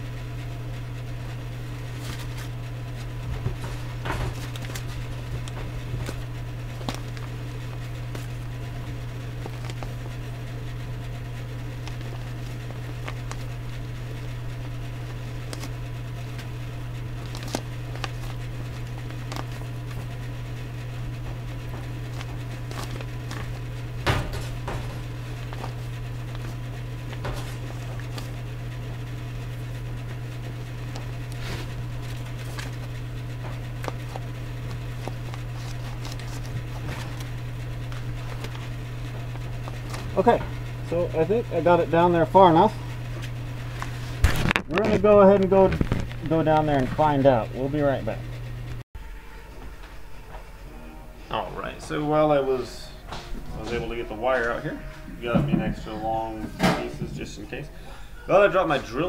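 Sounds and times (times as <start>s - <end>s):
steady low hum: 0.0s - 59.0s
cable clicks and rustles: 1.9s - 29.8s, 43.7s - 47.0s.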